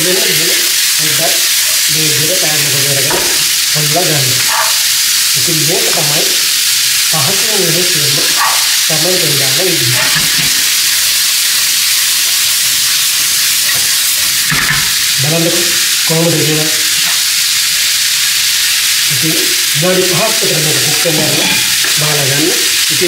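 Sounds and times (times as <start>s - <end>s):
food sizzling in a pan: 0.0s - 23.0s
spatula stirring food: 2.5s - 7.2s, 8.1s - 9.0s.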